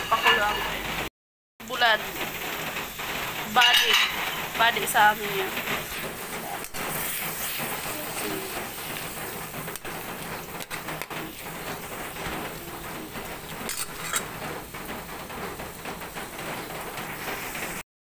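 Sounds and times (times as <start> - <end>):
pot sizzling and bubbling: 0.0 - 17.8.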